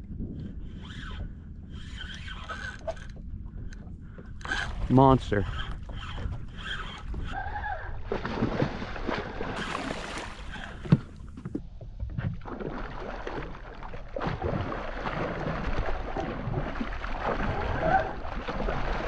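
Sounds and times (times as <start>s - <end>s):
fish splashing in water: 8.1s - 11.1s.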